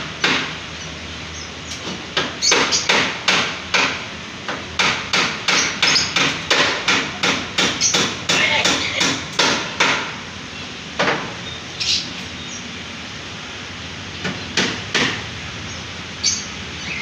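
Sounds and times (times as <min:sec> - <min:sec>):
steady background noise: 0:00.0 - 0:17.0
sharp knocks: 0:01.8 - 0:10.2, 0:11.0 - 0:11.4, 0:14.2 - 0:15.2.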